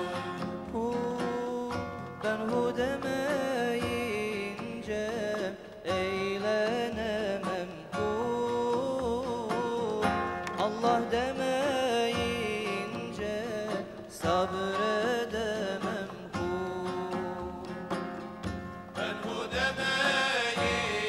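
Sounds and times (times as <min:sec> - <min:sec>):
instruments accompanying: 0:00.0 - 0:21.0
choir singing a hymn: 0:19.0 - 0:21.0.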